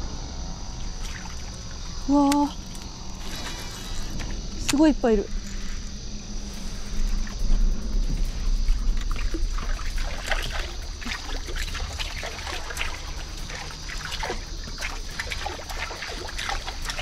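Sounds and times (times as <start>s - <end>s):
fishing lure splashing on water: 9.6s - 17.0s.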